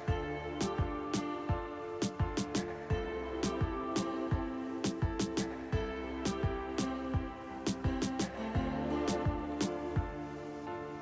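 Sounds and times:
instrumental music with beat: 0.0 - 11.0.

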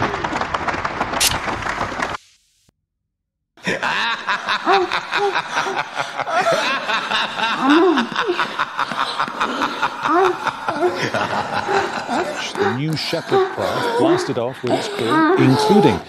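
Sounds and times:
people laughing hard: 3.6 - 16.0.

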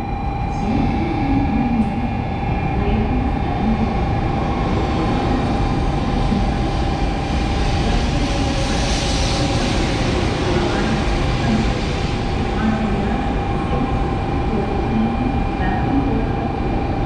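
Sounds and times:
train high whine: 0.0 - 17.0
train wheels rumbling on rails: 0.0 - 17.0
train hiss: 6.2 - 13.8.

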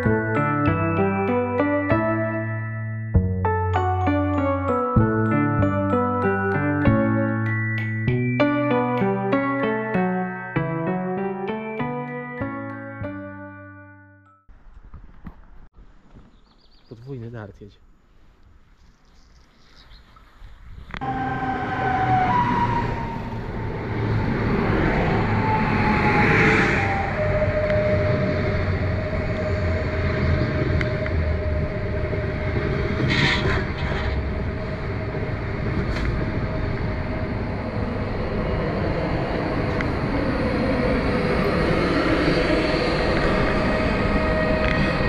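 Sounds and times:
electric train whine: 21.0 - 45.0
train wheels and air rushing: 21.0 - 45.0.

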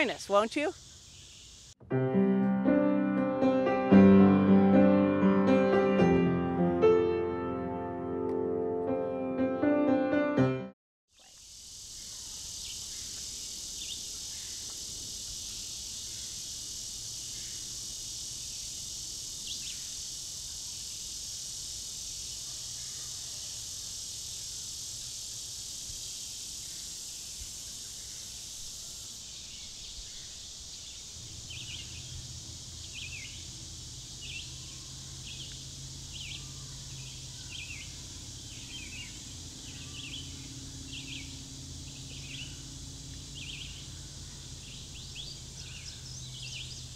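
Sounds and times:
insect chorus: 0.0 - 1.8, 11.1 - 46.9
bird chirping: 27.7 - 46.9
low hum: 34.8 - 46.9.

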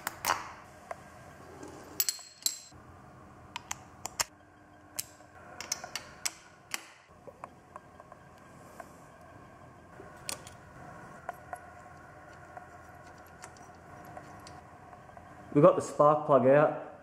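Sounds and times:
metal tools clicking and clinking: 2.0 - 2.7.

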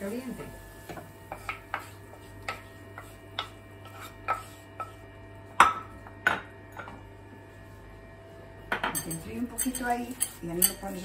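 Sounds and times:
utensil scraping frying pan: 0.8 - 5.0, 9.0 - 11.0.

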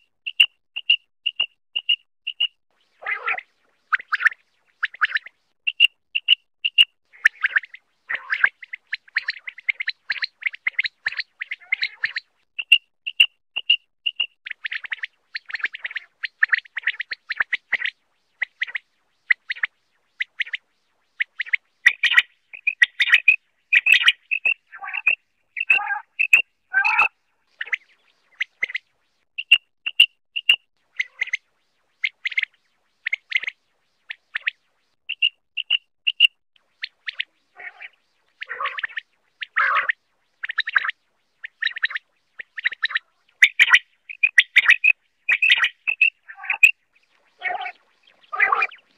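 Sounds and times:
low rough croaking calls: 0.3 - 13.2, 14.1 - 28.9, 30.4 - 31.4, 32.0 - 48.9
quail calling: 2.3 - 12.8, 21.2 - 28.8, 29.4 - 31.4, 33.1 - 48.9.

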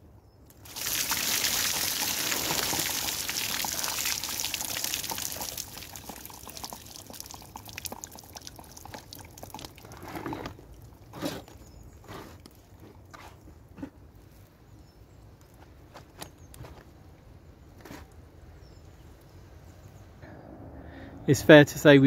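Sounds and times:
water dripping: 0.5 - 10.0
water pouring onto wooden bench: 0.5 - 11.0.

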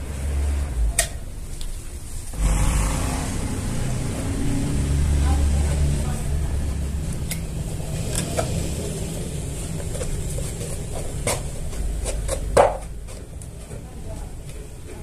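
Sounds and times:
steady low rumble: 0.1 - 13.1
plywood panels knocking and clicking: 11.0 - 13.2.

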